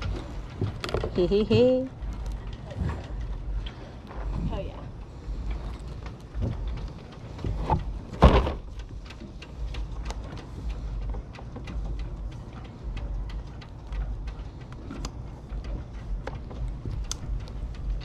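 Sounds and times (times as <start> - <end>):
steady low rumble: 0.0 - 18.0
kayak knocking against dock: 7.4 - 8.8
loud thump: 8.2 - 8.6.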